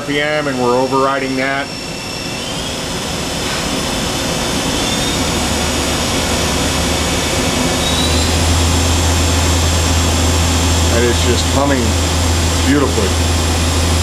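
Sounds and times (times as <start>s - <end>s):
low hum: 0.0s - 14.0s
machine spindle humming: 0.0s - 14.0s.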